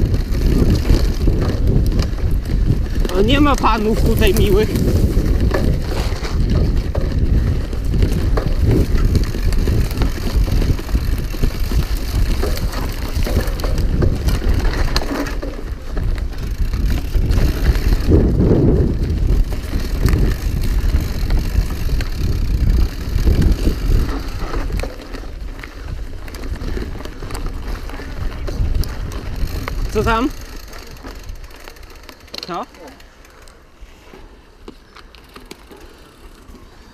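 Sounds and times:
wind buffeting microphone: 0:00.0 - 0:32.0
tyres rumbling on dirt: 0:00.0 - 0:33.2
bike rattling over bumps: 0:00.0 - 0:36.9.

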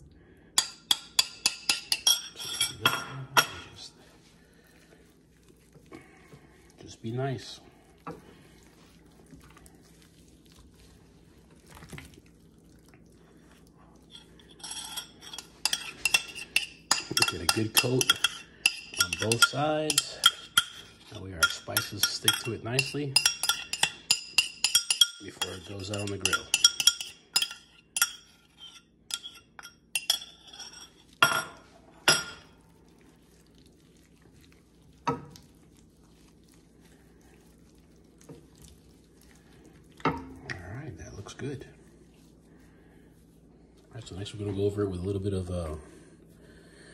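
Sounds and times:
spoon scraping ceramic bowl: 0:00.6 - 0:03.6, 0:14.0 - 0:32.6
soft wet squishing: 0:03.8 - 0:27.3, 0:30.8 - 0:46.9.

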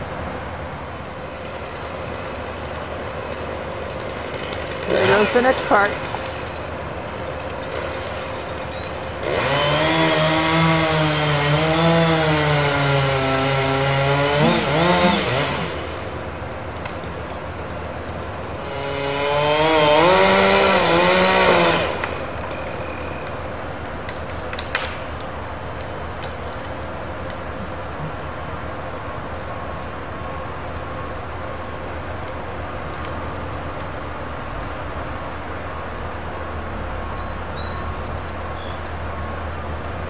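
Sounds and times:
chainsaw cutting wood: 0:01.1 - 0:16.2, 0:18.1 - 0:23.4.

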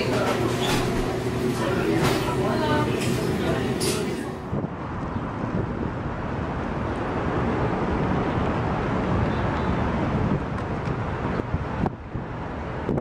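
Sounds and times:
road traffic: 0:00.0 - 0:13.0
wind on microphone: 0:04.4 - 0:13.0.

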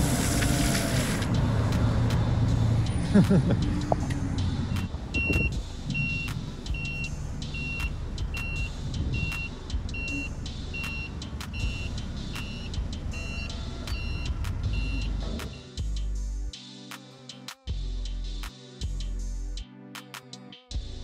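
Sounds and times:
forklift engine running: 0:00.0 - 0:15.6
warning alarm beeping: 0:04.7 - 0:15.7.

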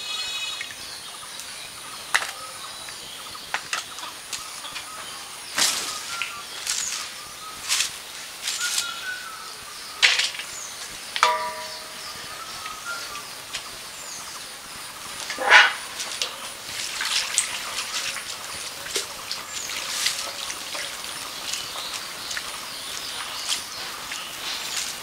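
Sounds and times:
birds chirping: 0:00.0 - 0:25.0
potatoes tipped into steel bowl: 0:10.0 - 0:10.5
steel bowls clanking and scraping: 0:10.0 - 0:14.3, 0:15.1 - 0:21.4.

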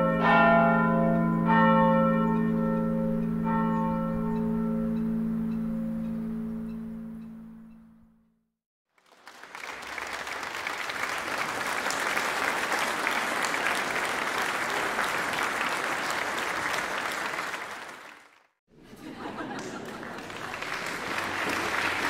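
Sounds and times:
congregation applauding: 0:08.9 - 0:18.5, 0:19.4 - 0:22.0.

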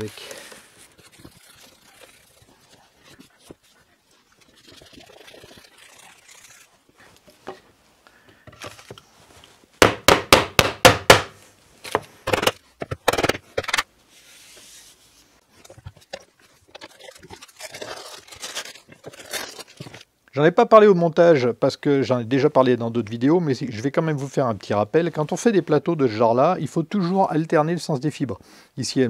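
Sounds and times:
rubbing and scraping of wood: 0:00.0 - 0:07.8, 0:11.9 - 0:20.1.

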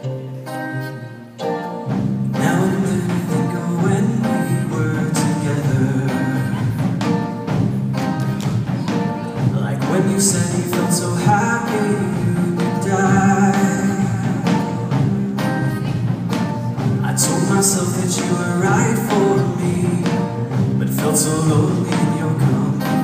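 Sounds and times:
bass: 0:00.0 - 0:23.0
drum kit beat: 0:00.0 - 0:23.0
guitar: 0:00.0 - 0:23.0
man singing into microphone: 0:02.4 - 0:06.8, 0:09.4 - 0:15.0, 0:16.9 - 0:23.0.

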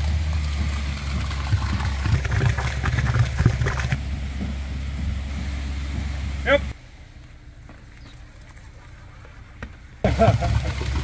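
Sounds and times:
concrete rattling through hose: 0:00.0 - 0:04.0, 0:08.0 - 0:11.0
pump engine droning: 0:00.0 - 0:11.0.

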